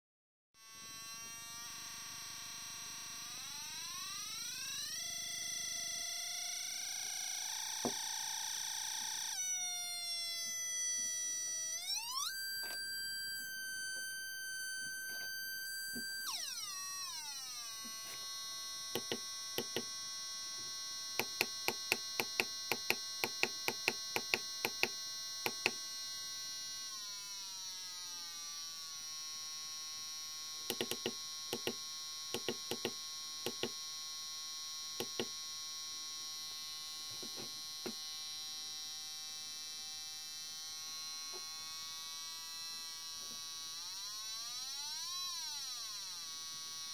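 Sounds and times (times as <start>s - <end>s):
buzzy electronic tone: 0.9s - 22.6s.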